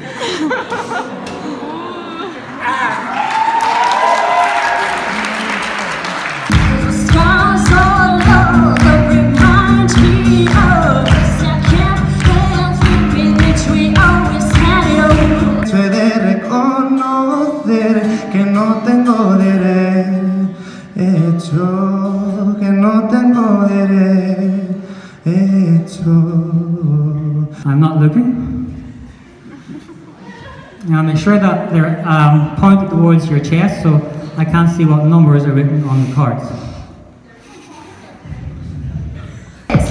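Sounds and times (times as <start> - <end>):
steady beat: 6.5 - 15.7, 39.7 - 39.9
person singing amplified: 6.5 - 28.9.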